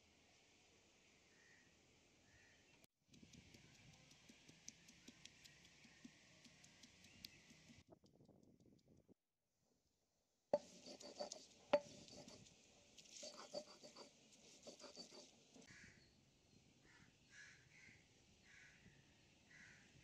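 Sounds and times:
crows cawing faintly: 1.3s - 2.6s, 14.9s - 16.0s, 16.8s - 20.0s
stone roller knocking and grinding: 10.6s - 12.4s, 13.2s - 15.2s.

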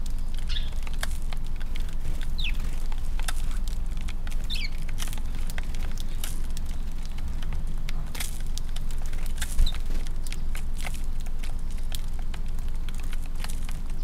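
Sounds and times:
bird chirp: 0.0s - 0.9s, 2.2s - 2.7s, 4.4s - 4.9s
birds pecking grain: 0.0s - 14.0s.

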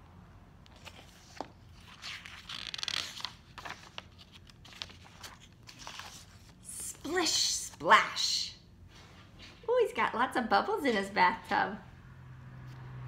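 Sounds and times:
book pages rustling and turning: 0.6s - 7.9s.

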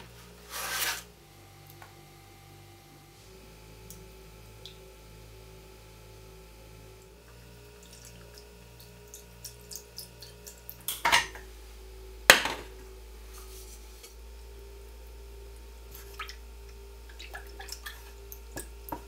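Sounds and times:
milk pouring into saucepan: 7.4s - 10.9s.

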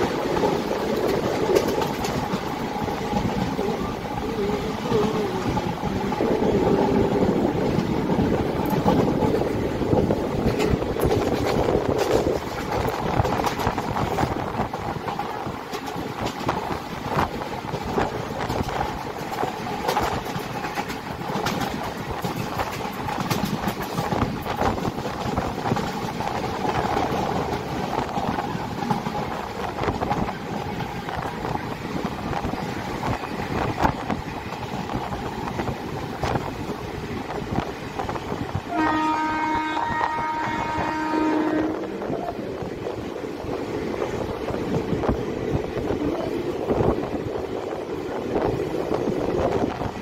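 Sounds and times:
train wheels clicking over rail joints: 0.0s - 41.2s
train running noise: 0.0s - 50.0s
train horn: 38.6s - 42.3s.

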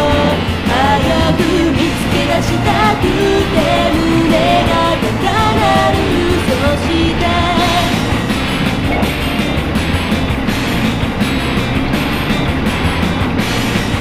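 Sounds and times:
pop song with singing and band: 0.0s - 8.3s.

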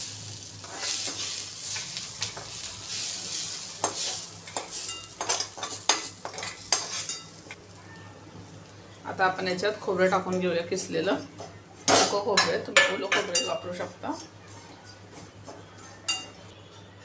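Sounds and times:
onions sizzling in oil: 0.0s - 14.4s
spatula scraping a pan: 0.6s - 7.4s.

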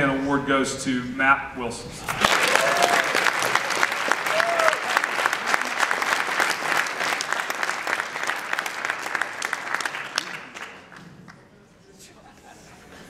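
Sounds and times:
audience applauding: 2.0s - 11.4s.

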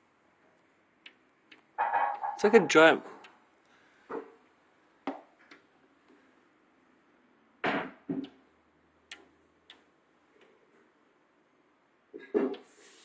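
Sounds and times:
faint clicks: 9.1s - 10.6s.

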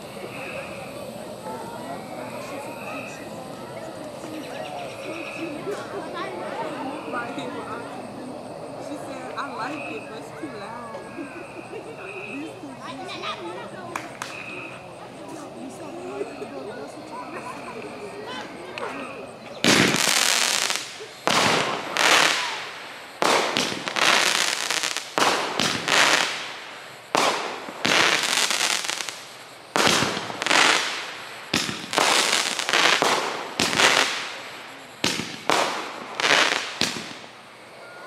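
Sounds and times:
fireworks bangs: 11.5s - 18.1s, 18.8s - 37.8s.

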